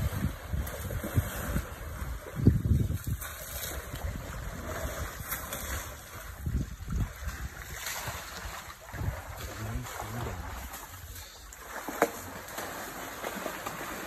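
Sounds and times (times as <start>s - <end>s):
wind buffeting microphone: 0.0s - 11.2s.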